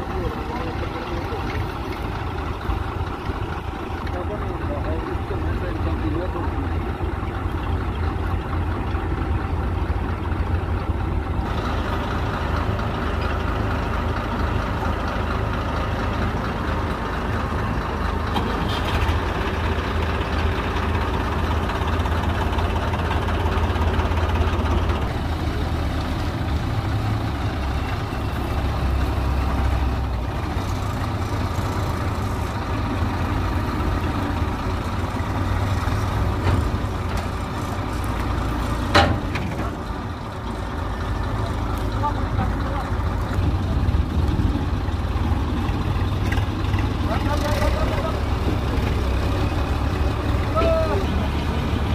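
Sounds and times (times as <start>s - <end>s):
combine harvester running: 0.0s - 51.9s.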